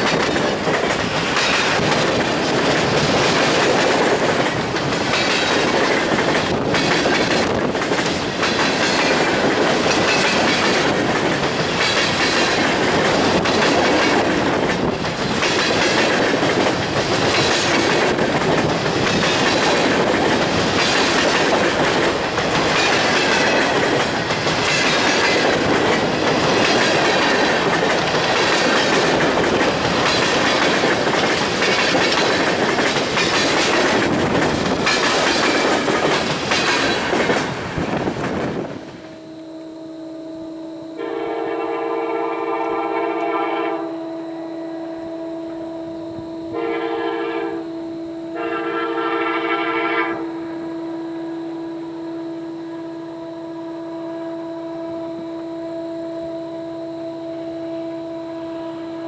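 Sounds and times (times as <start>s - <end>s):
train wheels clacking over rail joints: 0.0s - 38.7s.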